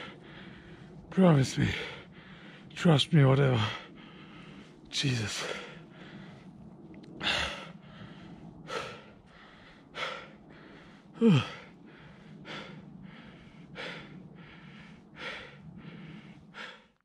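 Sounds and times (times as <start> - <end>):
person breathing heavily: 0.0 - 17.0
person groaning: 11.2 - 11.7.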